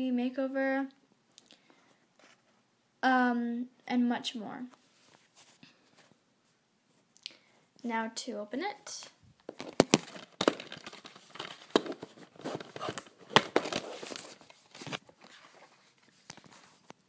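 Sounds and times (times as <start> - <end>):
plastic case clicking: 9.5 - 14.2
plastic rustling: 9.5 - 17.0.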